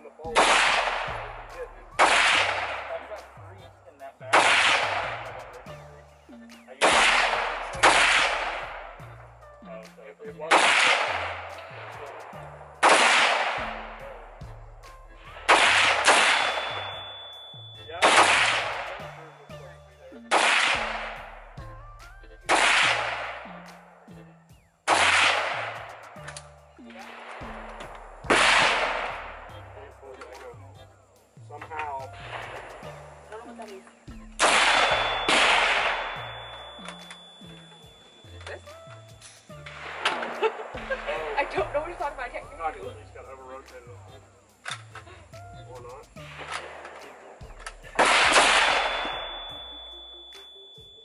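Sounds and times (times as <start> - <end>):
rifle shots echoing: 0.0 - 3.4, 4.3 - 5.4, 6.8 - 9.0, 10.5 - 14.1, 15.4 - 19.0, 20.2 - 21.4, 22.5 - 23.5, 24.9 - 29.5, 34.4 - 37.3, 39.7 - 41.6, 46.2 - 49.8.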